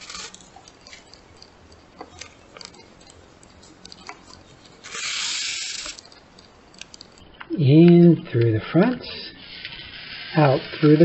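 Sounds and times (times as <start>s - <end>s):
shoelace threading clicks and rustling: 0.0s - 7.2s.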